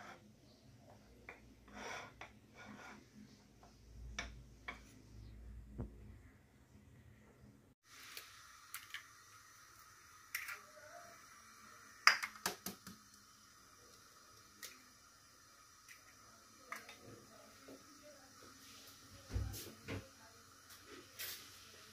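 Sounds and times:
faint steady hiss: 0.0 - 21.9
eggs cracking against bowl: 12.0 - 13.2.

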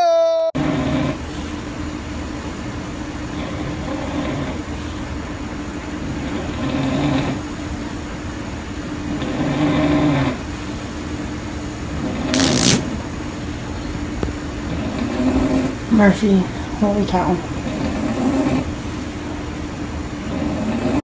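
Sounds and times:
dog snoring: 0.6 - 1.3, 3.3 - 4.7, 6.0 - 7.4, 9.1 - 10.4, 11.9 - 12.6, 14.7 - 15.8, 17.5 - 18.7, 20.2 - 21.0
dog farting: 9.1 - 10.4, 12.0 - 12.9.

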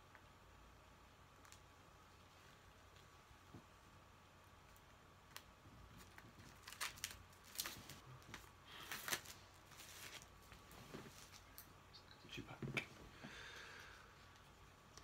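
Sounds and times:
cardboard and paper rustling: 5.8 - 11.4.

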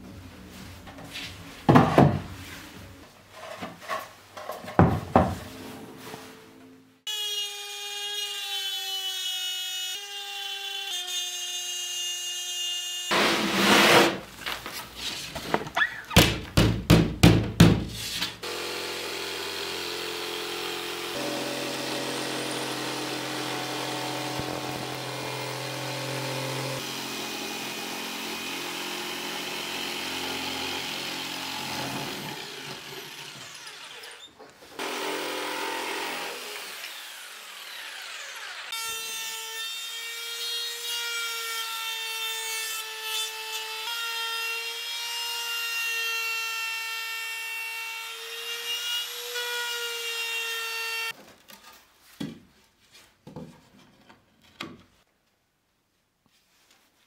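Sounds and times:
jigsaw cutting plywood: 13.0 - 14.2, 18.4 - 34.2, 34.8 - 38.9
trim router whining: 18.4 - 34.2.

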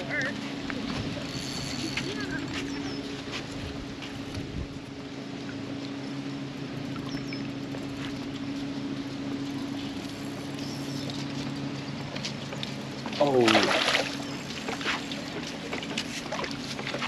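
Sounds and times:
boat motor idling: 0.0 - 17.0.

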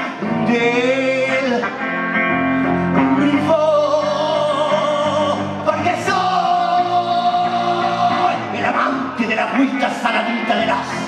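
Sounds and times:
man singing drawn-out notes: 2.9 - 11.0.

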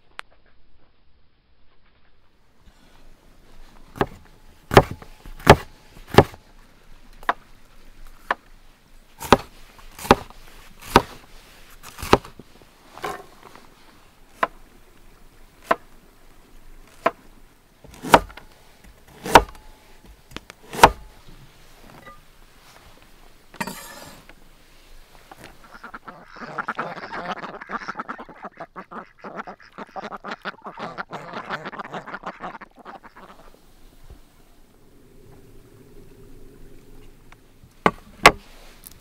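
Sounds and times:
cleaver chopping on wooden board: 4.0 - 6.4, 9.2 - 11.2, 12.0 - 12.3, 18.0 - 18.4, 19.2 - 19.6, 20.7 - 21.0.

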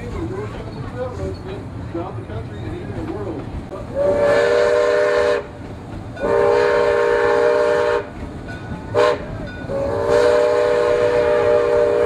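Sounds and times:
steam locomotive whistle: 4.0 - 5.5, 6.2 - 8.1, 8.9 - 12.0.

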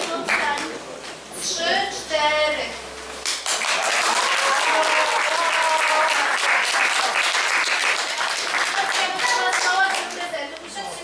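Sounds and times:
audience applauding: 3.2 - 10.1
voices: 8.6 - 11.0.

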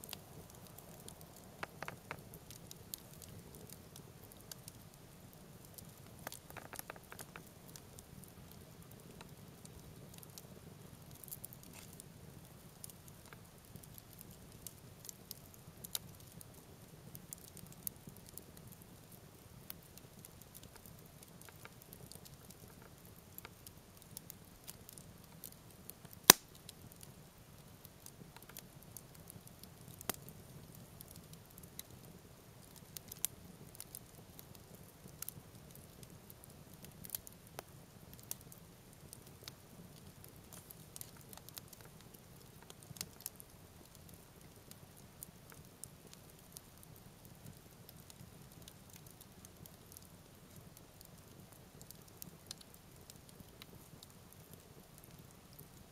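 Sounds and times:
campfire crackling and popping: 0.0 - 55.9.

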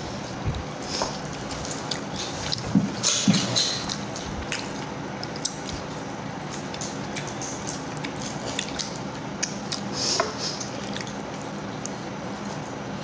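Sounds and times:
chewing crunchy snack: 0.2 - 12.8.

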